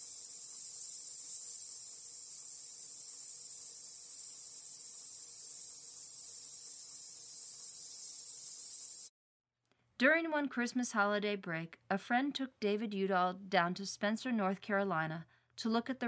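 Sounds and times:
steady high-pitched hiss: 0.0 - 9.1.

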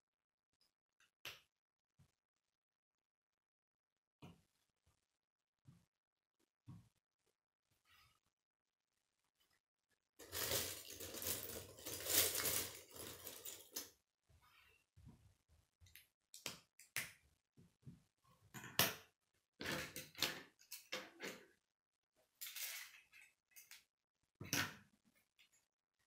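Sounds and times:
plastic pieces clattering: 10.2 - 13.9.

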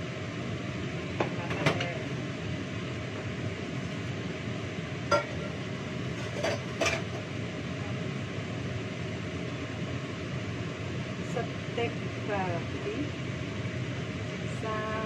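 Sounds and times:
steady low hum: 0.0 - 15.0
metal bowl and utensils clinking: 5.1 - 5.6.

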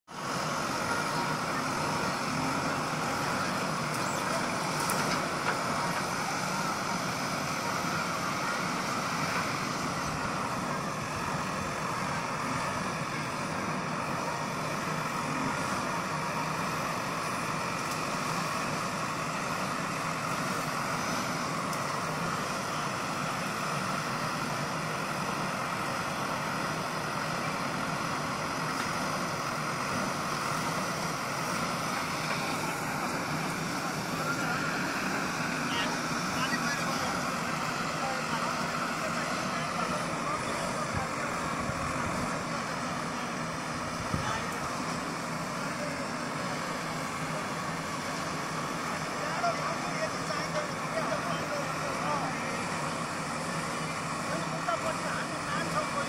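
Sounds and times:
diesel engine running under load: 0.0 - 56.0.

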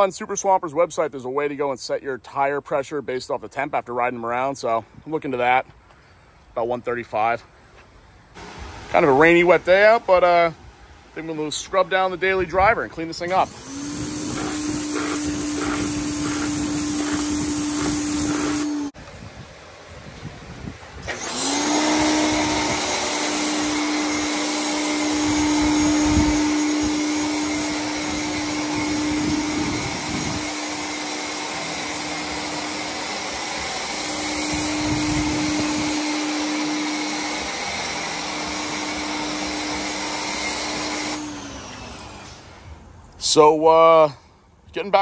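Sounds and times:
spray hissing: 8.4 - 19.0, 21.4 - 41.4
pressure washer motor hum: 8.4 - 42.8.

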